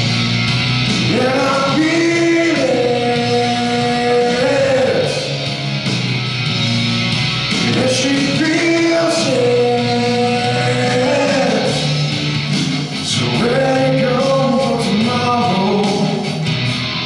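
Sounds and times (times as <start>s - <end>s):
loud rock accompaniment: 0.0s - 17.0s
man singing into a microphone: 1.0s - 5.4s, 7.6s - 12.1s, 13.0s - 16.4s.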